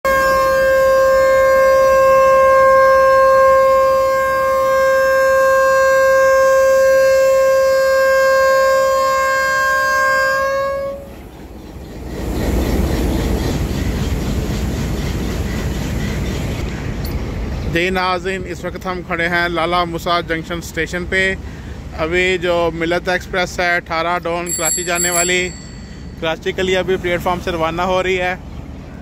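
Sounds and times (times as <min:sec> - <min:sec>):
locomotive horn blast: 0:00.0 - 0:11.4, 0:24.5 - 0:26.2.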